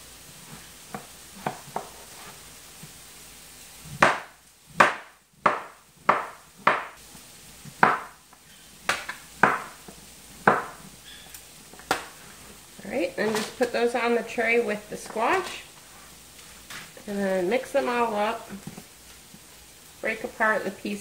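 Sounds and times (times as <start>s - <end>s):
knife chopping on cutting board: 0.9s - 2.0s, 4.0s - 7.0s, 7.8s - 8.2s, 8.9s - 9.8s, 10.4s - 10.8s.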